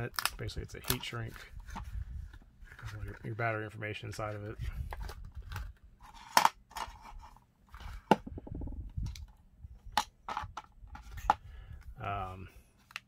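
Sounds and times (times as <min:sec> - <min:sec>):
plastic parts clicking and knocking: 0:07.8 - 0:11.5.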